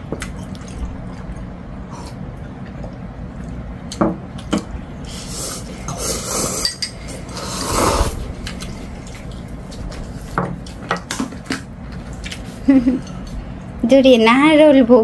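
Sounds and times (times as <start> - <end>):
slurping food and soup: 5.0 - 10.4.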